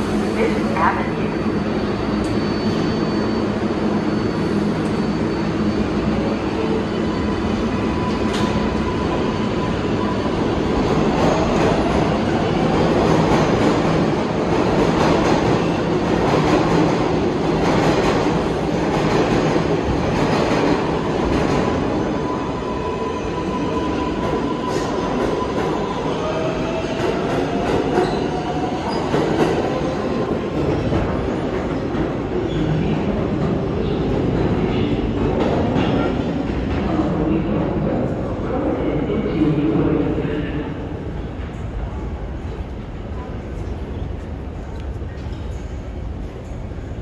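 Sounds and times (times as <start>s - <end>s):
subway train rumbling: 0.0s - 47.0s
faint high wheel squeal: 2.2s - 10.2s.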